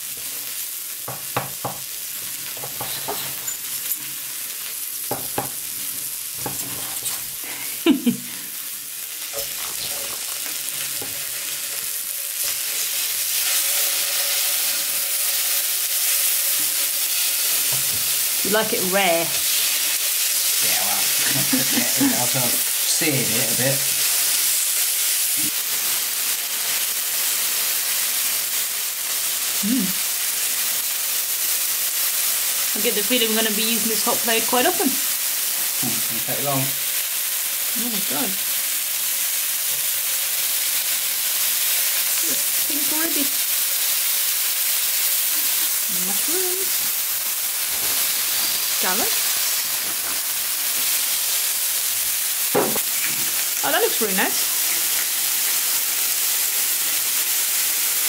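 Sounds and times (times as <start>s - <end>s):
grill plate sizzling: 0.0s - 58.0s
knife knocking on wooden board: 1.1s - 1.8s, 5.1s - 5.6s, 52.6s - 52.8s.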